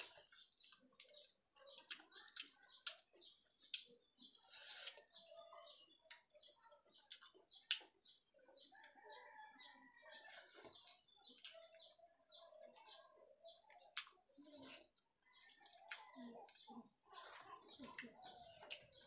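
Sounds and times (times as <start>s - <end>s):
birds chirping: 0.0s - 19.0s
faint eating sounds: 0.0s - 19.0s.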